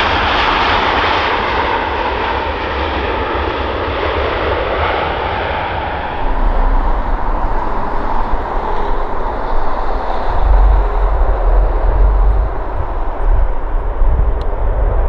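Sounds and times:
jet engines rumbling: 0:05.2 - 0:15.0.

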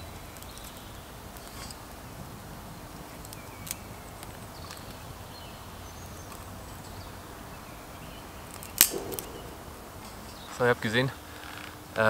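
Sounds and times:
steady outdoor hiss: 0:00.0 - 0:12.0
fire crackling and popping: 0:08.5 - 0:10.7.

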